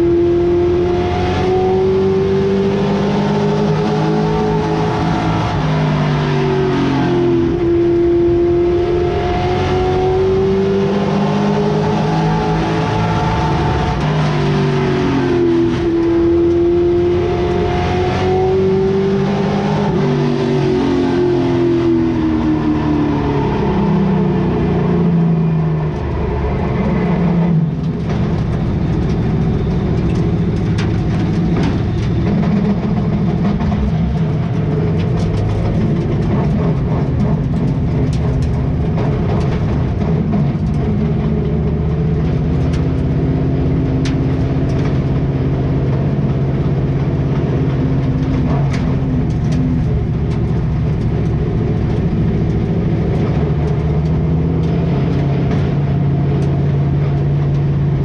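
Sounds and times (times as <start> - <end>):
race car engine running: 0.0 - 58.0
car clicks and rattles: 27.7 - 58.0.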